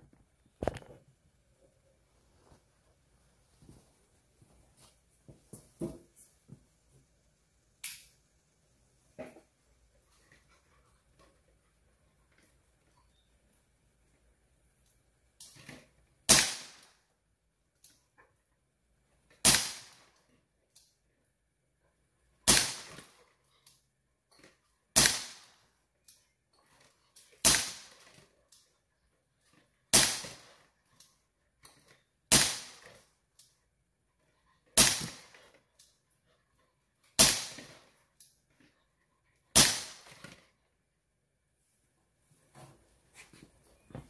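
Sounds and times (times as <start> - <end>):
bb pistol shots popping: 16.3 - 16.8, 19.4 - 20.0, 22.5 - 23.0, 25.0 - 25.5, 27.4 - 28.0, 29.9 - 30.5, 32.3 - 32.9, 34.8 - 35.4, 37.2 - 37.7, 39.6 - 40.2.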